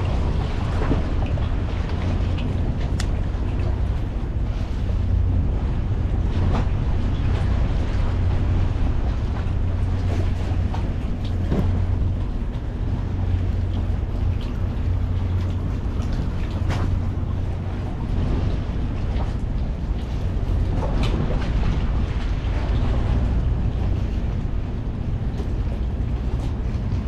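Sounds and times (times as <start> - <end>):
water lapping around a boat: 0.0 - 27.0
wind buffeting the microphone: 0.0 - 27.0
light knocks: 11.3 - 11.9.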